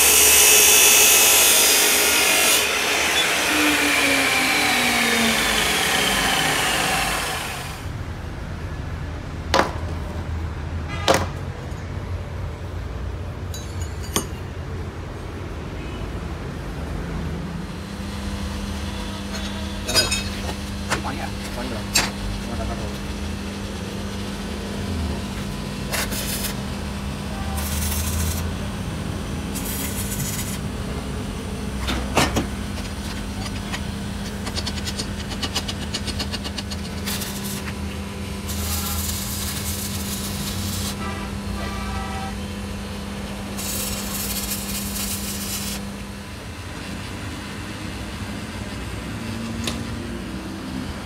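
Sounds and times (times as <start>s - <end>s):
hissing bursts: 38.5s - 41.0s, 43.6s - 45.8s.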